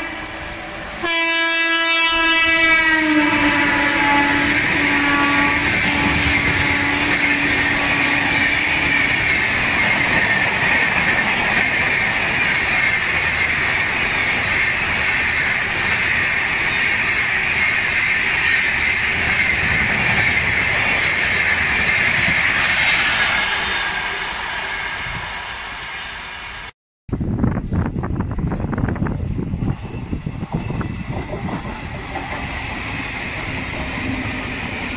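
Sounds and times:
train horn: 0.0 - 9.8
train wheels rushing on rail: 0.0 - 34.9.

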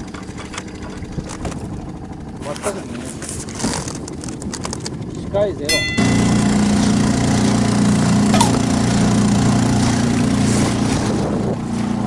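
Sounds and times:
outboard motor running: 0.0 - 5.2
brief click: 8.4 - 8.6.

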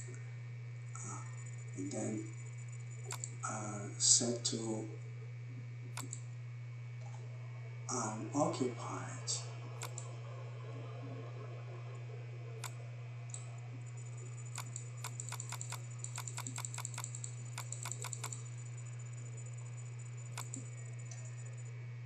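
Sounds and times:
steady low hum: 0.0 - 22.0
computer keys clicking: 3.0 - 3.4, 5.9 - 6.2, 9.8 - 10.1, 12.6 - 18.5, 20.1 - 21.6.

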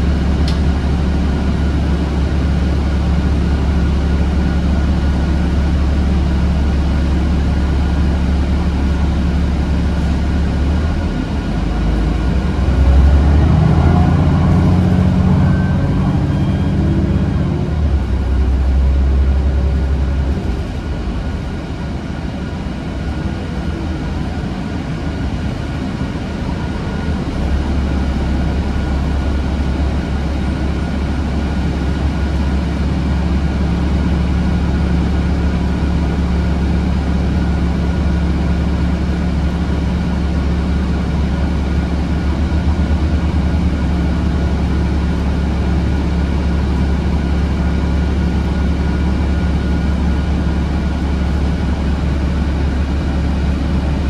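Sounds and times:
bus engine humming: 0.0 - 54.0
higher steady hum: 13.7 - 54.0.

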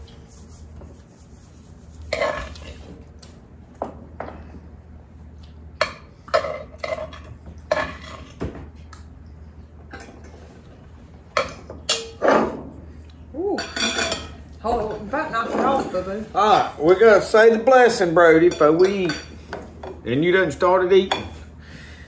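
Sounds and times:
metal utensils clinking on pot: 11.4 - 12.5, 13.6 - 14.4.

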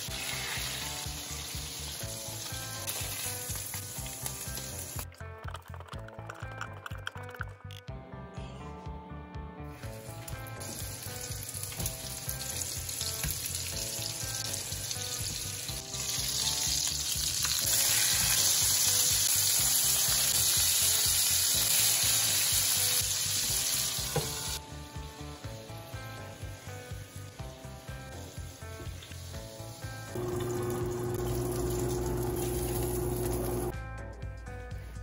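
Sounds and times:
patties sizzling in oil: 0.0 - 5.1, 9.8 - 33.7.

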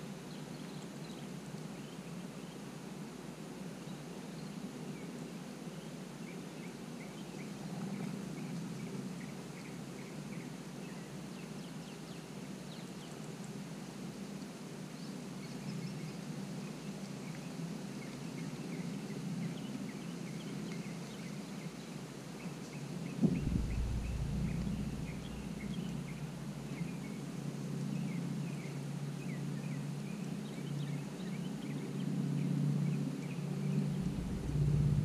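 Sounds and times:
small birds chirping: 3.8 - 35.0
sharp knock: 23.2 - 26.2
deep rumble: 23.2 - 26.9, 33.6 - 35.0
steady low hum: 23.2 - 29.1, 33.2 - 35.0.

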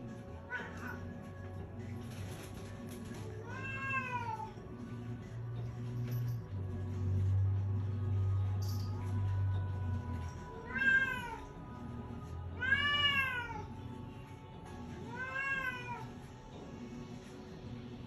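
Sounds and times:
cat meowing: 3.4 - 4.6, 10.6 - 11.5, 12.6 - 13.8, 15.1 - 16.2.

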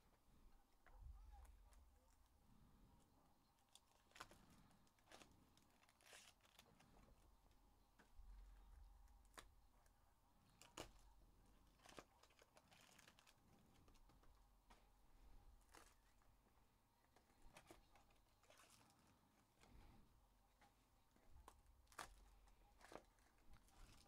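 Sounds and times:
foil packs crinkling and tearing: 3.7 - 7.1, 10.5 - 11.1, 11.7 - 14.1, 21.8 - 24.0.

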